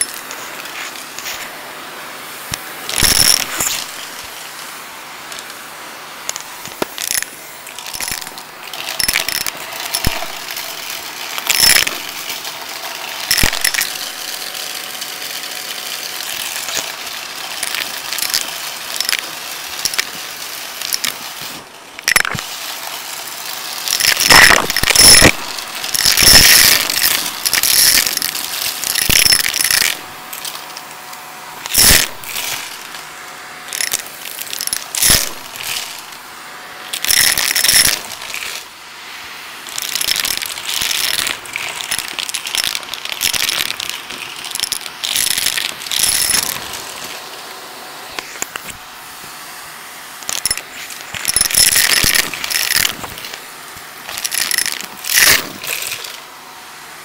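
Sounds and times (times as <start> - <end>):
coins and glass rattling up tube: 0.0 - 1.3, 2.9 - 4.3, 6.3 - 30.8, 31.6 - 33.0, 33.7 - 36.2, 36.9 - 38.7, 39.7 - 47.2, 50.2 - 53.4, 54.1 - 56.2
vacuum cleaner running: 0.0 - 57.0.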